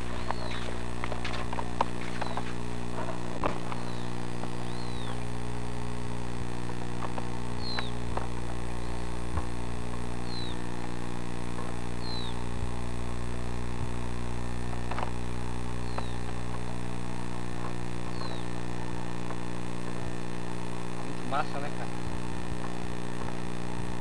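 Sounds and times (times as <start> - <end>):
bird chirping: 0.0 - 5.2, 6.0 - 16.5, 18.0 - 18.7
steady low hum: 0.0 - 24.0.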